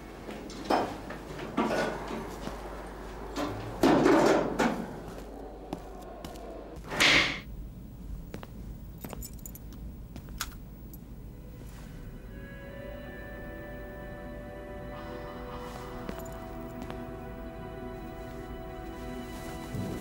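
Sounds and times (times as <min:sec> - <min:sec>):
keys jangling: 0:09.0 - 0:09.8.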